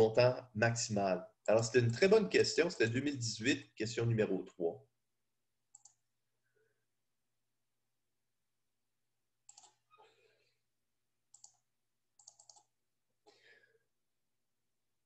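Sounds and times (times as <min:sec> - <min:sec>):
computer mouse clicks: 0:05.7 - 0:06.0, 0:09.5 - 0:09.8, 0:11.3 - 0:11.6, 0:12.2 - 0:12.7.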